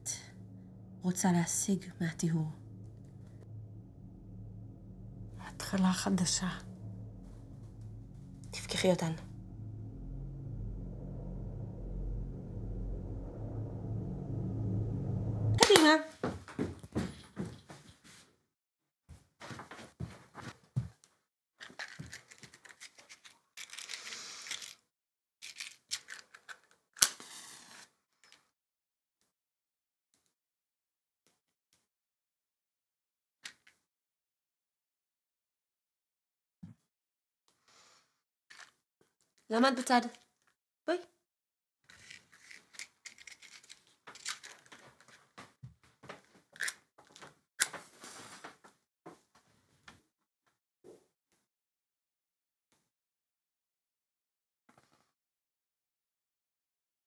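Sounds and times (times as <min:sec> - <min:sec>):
matches rattling in matchbox: 0:21.6 - 0:24.8, 0:25.4 - 0:27.8, 0:41.9 - 0:45.1.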